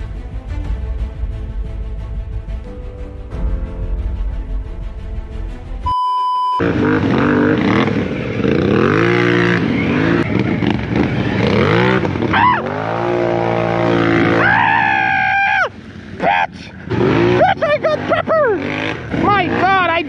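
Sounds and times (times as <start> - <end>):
atv engine revving: 6.5 - 20.0.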